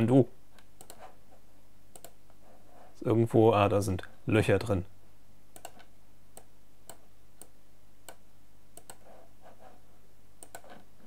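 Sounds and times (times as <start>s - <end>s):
mouse buttons clicking: 0.7s - 1.0s, 1.9s - 2.2s, 5.6s - 8.2s, 8.8s - 9.1s, 10.4s - 10.7s.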